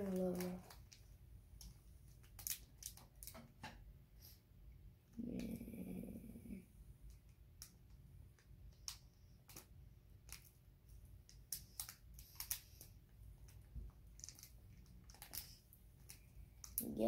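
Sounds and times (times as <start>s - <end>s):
plastic packet crinkling: 0.0s - 1.0s, 2.2s - 3.3s, 14.1s - 15.6s.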